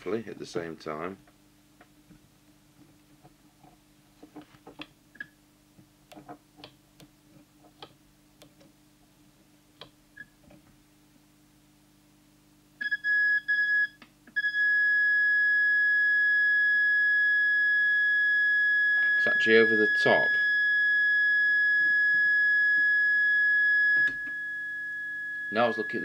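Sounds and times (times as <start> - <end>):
high pure test tone: 18.2 - 26.0.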